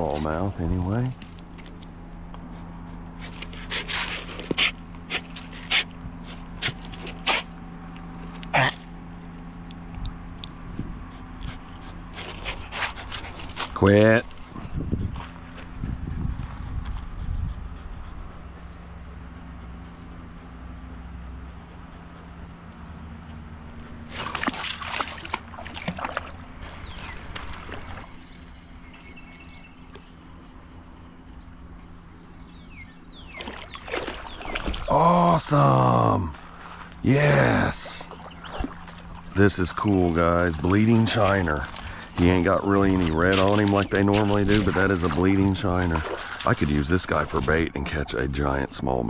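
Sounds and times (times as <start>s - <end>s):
dog huffing and snorting: 2.4s - 7.6s, 11.0s - 15.3s
dog splashing through water: 23.7s - 31.2s, 33.2s - 35.2s, 37.4s - 47.7s.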